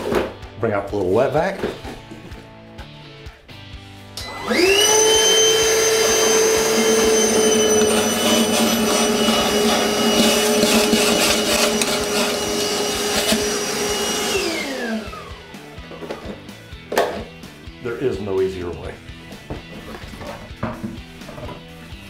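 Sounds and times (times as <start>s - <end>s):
shop vacuum motor whine: 4.2s - 16.3s.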